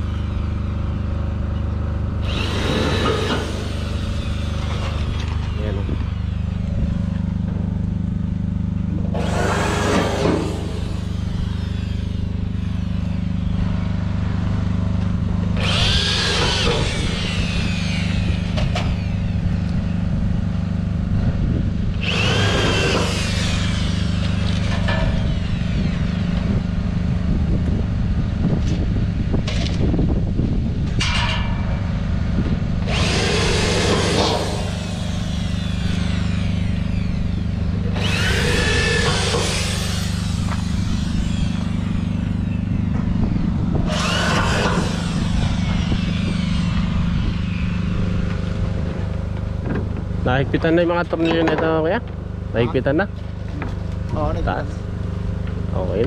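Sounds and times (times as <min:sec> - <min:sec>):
generator humming: 0:00.0 - 0:56.0
power drill driving screws: 0:02.2 - 0:05.6, 0:09.1 - 0:13.5, 0:15.6 - 0:19.4, 0:22.0 - 0:26.5, 0:32.8 - 0:48.5.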